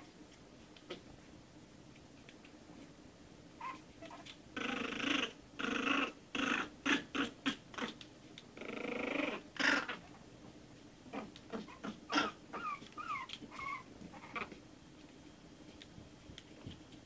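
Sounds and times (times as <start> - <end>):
puppy yips: 3.6 - 4.3, 11.6 - 14.5
puppies growling: 3.6 - 10.2, 11.1 - 14.6.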